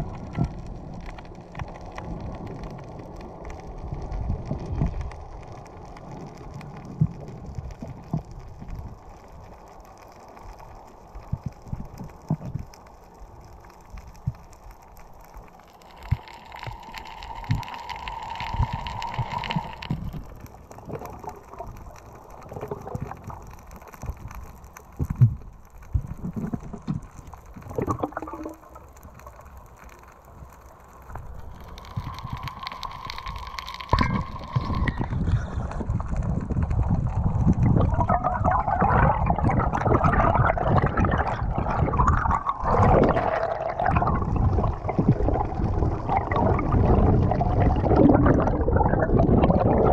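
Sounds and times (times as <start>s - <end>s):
muffled water washing underwater: 0.0s - 49.9s
steady hum: 15.6s - 20.7s.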